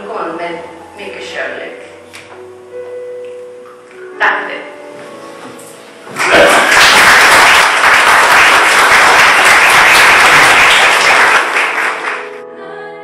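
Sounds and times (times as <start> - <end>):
audience applauding: 6.1 - 12.4.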